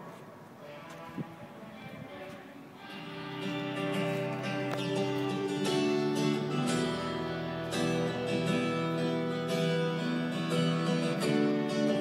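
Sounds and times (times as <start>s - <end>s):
acoustic guitar strumming chords: 2.8s - 12.0s.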